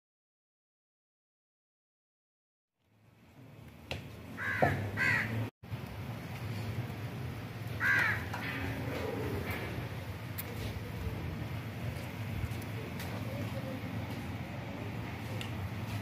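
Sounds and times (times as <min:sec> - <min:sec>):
crow cawing: 0:04.4 - 0:05.4, 0:07.8 - 0:08.7.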